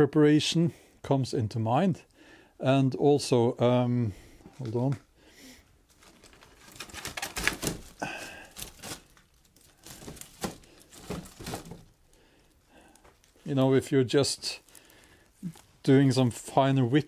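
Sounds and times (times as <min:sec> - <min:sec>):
rustling: 0:04.2 - 0:17.0.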